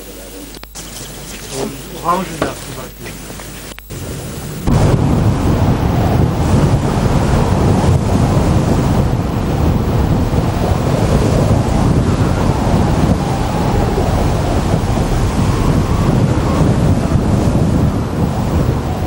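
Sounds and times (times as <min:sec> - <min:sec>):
wind buffeting microphone: 0:00.8 - 0:19.0.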